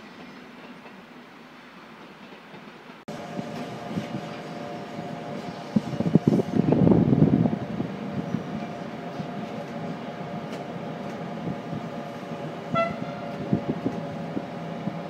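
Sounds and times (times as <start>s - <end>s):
train wheels rolling on rail: 0.0s - 15.0s
short high train toot: 12.6s - 13.4s.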